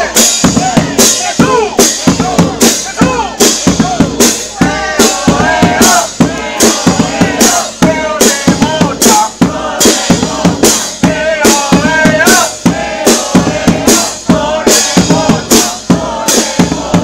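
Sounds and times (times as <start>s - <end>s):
brass band playing: 0.0s - 17.0s
drum and cymbal hits: 0.0s - 17.0s.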